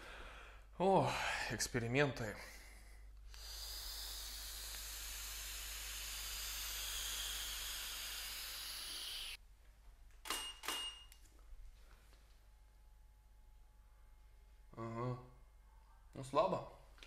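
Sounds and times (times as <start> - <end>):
slow exhale hissing through lips: 3.3 - 9.4
quick clicks: 10.2 - 11.2.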